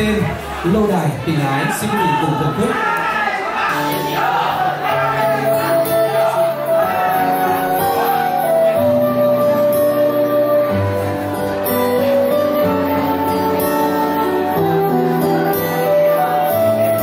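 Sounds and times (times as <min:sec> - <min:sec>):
live band playing slow song: 0:03.7 - 0:17.0.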